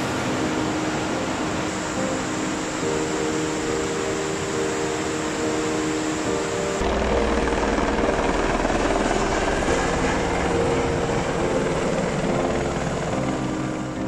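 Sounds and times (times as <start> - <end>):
helicopter rotor thrum: 6.8 - 14.0.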